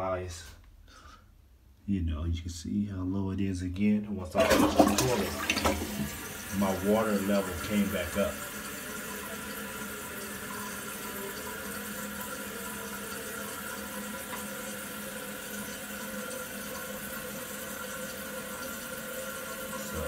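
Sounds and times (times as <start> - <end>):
toilet tank refilling hiss: 4.4 - 20.0.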